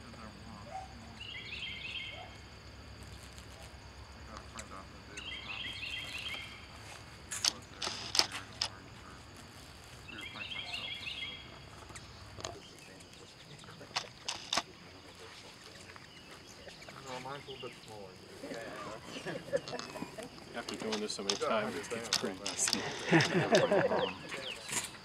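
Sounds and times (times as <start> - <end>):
songbird singing: 0.0 - 25.0
sharp clicks: 7.3 - 8.8, 11.9 - 14.7, 20.6 - 23.4.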